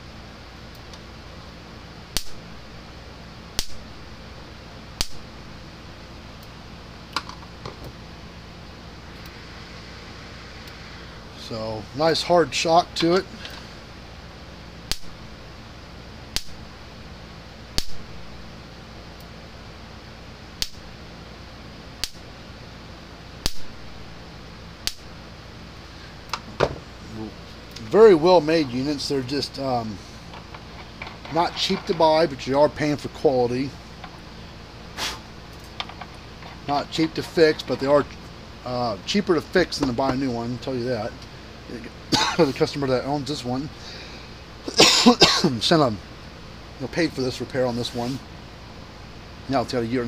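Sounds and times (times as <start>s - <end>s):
electric fence spark snaps: 2.1s - 2.5s, 3.5s - 3.9s, 5.0s - 5.3s, 14.8s - 15.2s, 16.3s - 16.6s, 17.7s - 18.1s, 20.6s - 20.9s, 22.0s - 22.3s, 23.4s - 23.8s, 24.8s - 25.1s.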